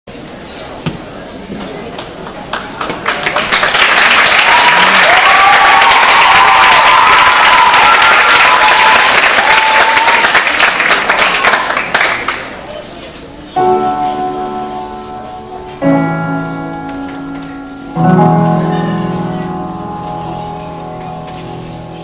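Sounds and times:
audience applauding: 2.0 - 12.7.

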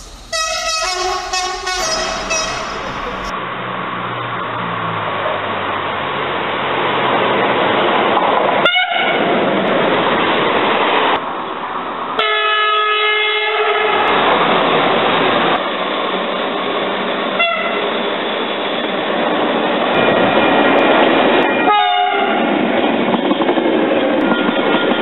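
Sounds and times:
train horn toots: 0.0 - 3.3, 8.7 - 9.2, 12.2 - 14.1, 17.4 - 17.9, 21.5 - 22.5, 24.2 - 25.0
train rolling past: 0.0 - 3.3, 7.4 - 25.0.

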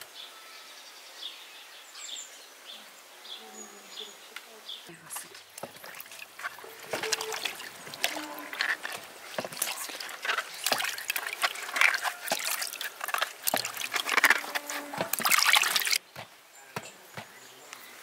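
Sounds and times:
hands scrubbing fruit in water: 4.9 - 16.0
water dripping and trickling: 4.9 - 16.0.

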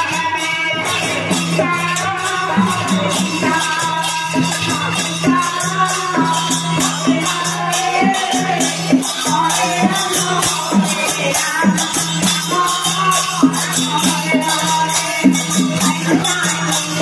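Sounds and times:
hand cymbals clashing: 0.0 - 17.0
group chanting in unison: 6.8 - 11.9.

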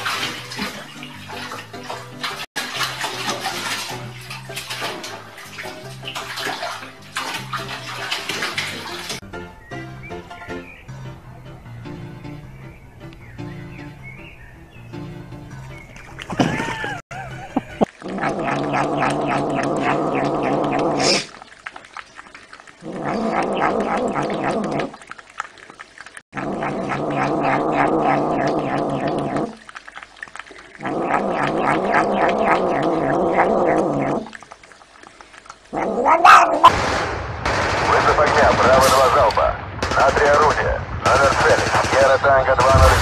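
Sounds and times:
cat growling: 17.9 - 21.3, 22.8 - 24.9, 26.4 - 29.6, 30.7 - 34.4, 35.7 - 36.7
sharp sound: 42.6 - 43.0.

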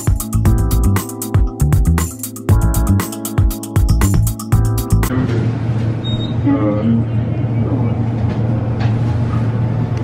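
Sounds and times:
music with beat and deep bass: 0.0 - 5.1.

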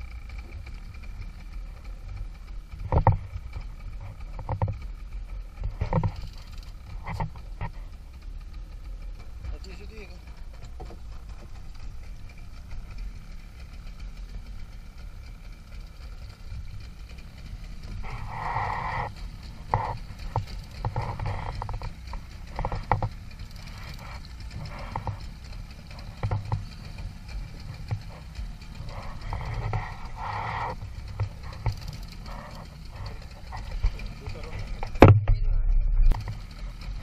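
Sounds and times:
wind and sea rumble: 0.0 - 37.0
knocks and clatters of gear: 2.1 - 5.0, 5.6 - 7.9, 9.2 - 12.8, 17.8 - 37.0.

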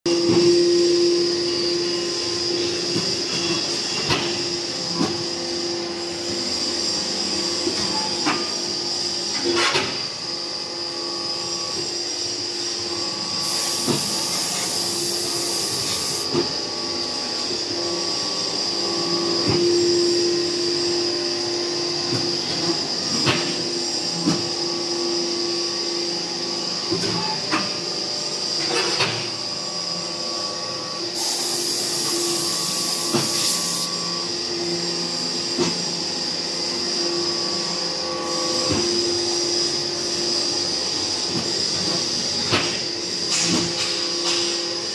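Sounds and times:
machine motor hum with whine: 0.1 - 44.9
hiss: 13.4 - 16.3, 31.2 - 33.9.

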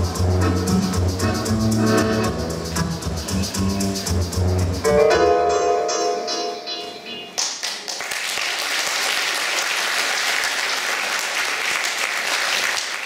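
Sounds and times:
audience applauding: 7.4 - 13.0.

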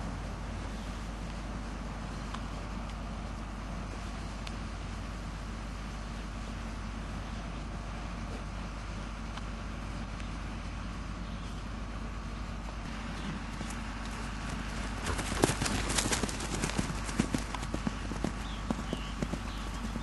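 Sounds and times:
steady low hum: 0.0 - 20.0
hoofbeats on grass: 12.9 - 20.0.

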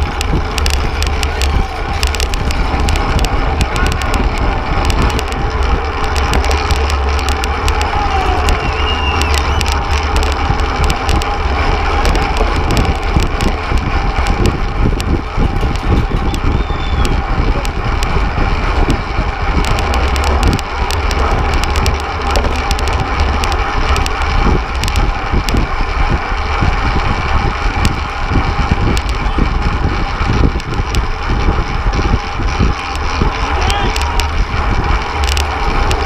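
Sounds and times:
bicycle clicks and rattles: 0.0 - 36.0
road noise: 0.0 - 36.0
wind buffeting microphone: 0.0 - 36.0.

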